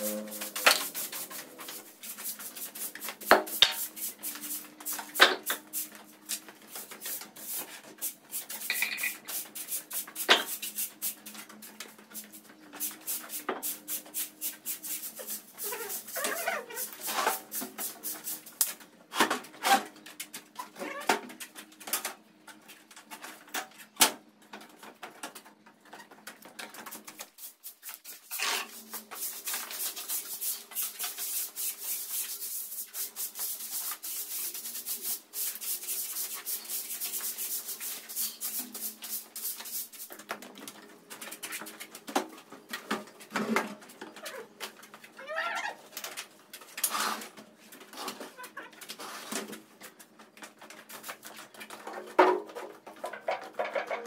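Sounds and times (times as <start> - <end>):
knocks and clatters: 51.6 - 54.0.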